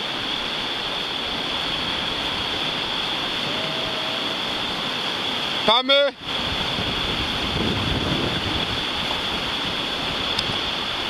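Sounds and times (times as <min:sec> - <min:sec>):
whitewater river rushing: 0:00.0 - 0:11.0.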